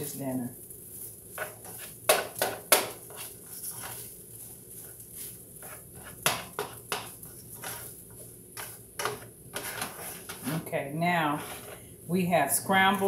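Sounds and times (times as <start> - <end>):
utensil scraping rice in pan: 0.8 - 11.9
utensil knocking against pan: 2.1 - 3.0.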